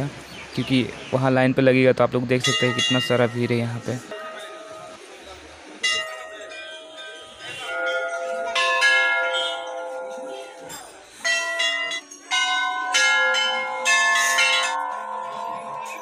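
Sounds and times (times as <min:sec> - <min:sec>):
brass bells ringing: 0:02.4 - 0:05.0, 0:05.8 - 0:16.0.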